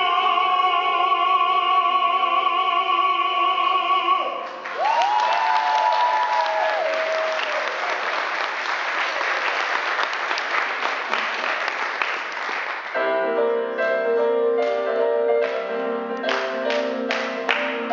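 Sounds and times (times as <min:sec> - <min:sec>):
audience applauding: 0:04.4 - 0:13.0
piano music: 0:12.9 - 0:17.9.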